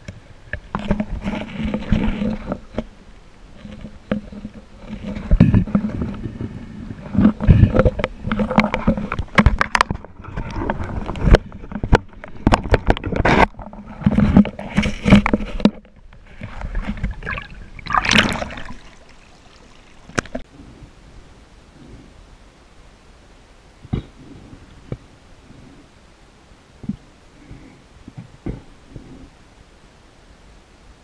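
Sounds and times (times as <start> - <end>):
water sloshing underwater: 0.0 - 20.5.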